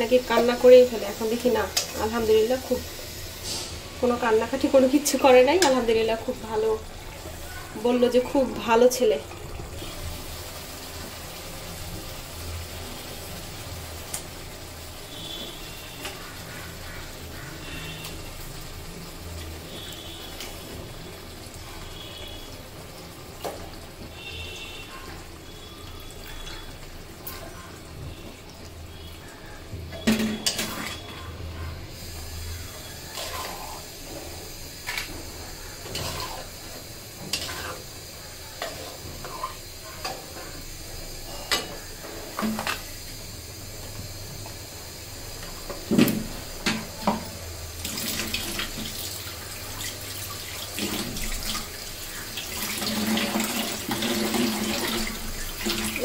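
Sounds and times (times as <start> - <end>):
metal spatula scraping iron pot: 33.1 - 33.8, 35.8 - 36.5, 37.3 - 37.9, 38.6 - 40.1.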